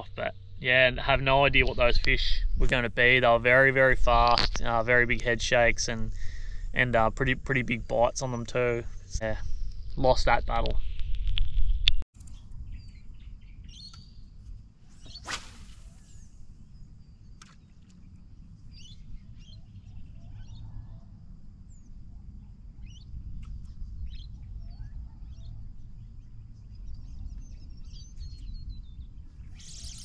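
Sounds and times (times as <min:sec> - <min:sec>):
steady low rumble: 0:00.0 - 0:13.6
brief swish: 0:15.0 - 0:16.3.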